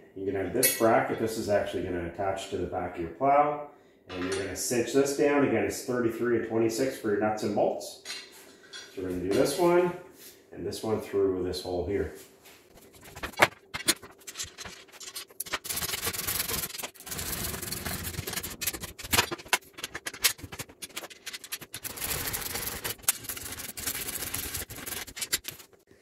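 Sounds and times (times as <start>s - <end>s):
metal rubbing and scraping: 12.7s - 25.8s.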